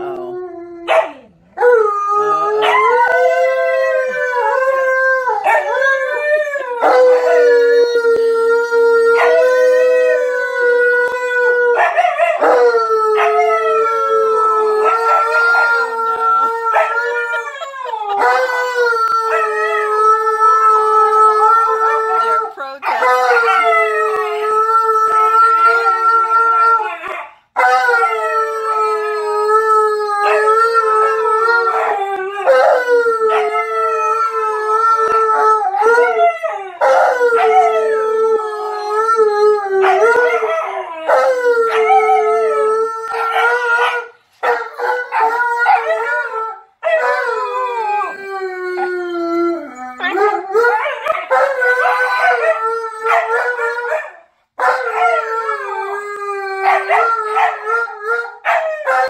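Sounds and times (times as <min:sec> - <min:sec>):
dogs howling: 0:00.0 - 0:59.0.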